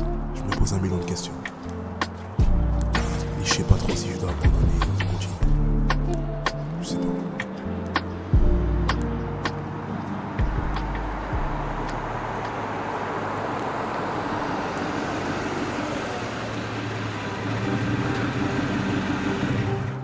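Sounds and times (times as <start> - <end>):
low engine hum: 0.0 - 20.0
tyres hissing on road: 10.8 - 20.0.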